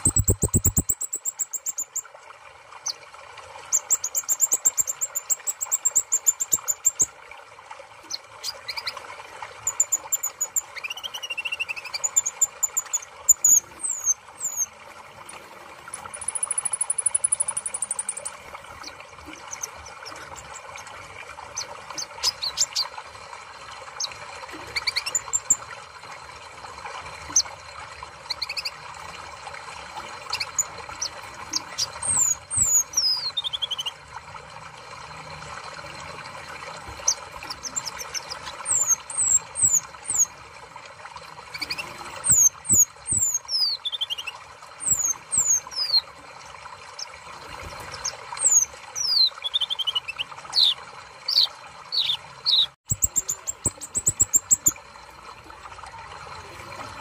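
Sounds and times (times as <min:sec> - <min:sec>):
high thin bird chirps: 0:00.0 - 0:02.0, 0:09.7 - 0:14.7, 0:15.9 - 0:20.8, 0:21.5 - 0:22.9, 0:24.7 - 0:25.6, 0:37.0 - 0:40.3, 0:41.5 - 0:46.0, 0:47.9 - 0:54.8.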